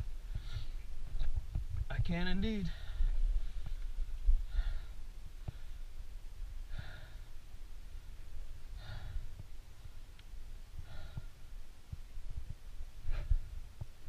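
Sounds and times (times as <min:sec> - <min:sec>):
low rumble on microphone: 0:00.0 - 0:14.0
person breathing heavily: 0:00.2 - 0:01.0, 0:02.6 - 0:10.1, 0:10.7 - 0:11.6, 0:13.0 - 0:13.8
faint clicks: 0:09.4 - 0:10.3.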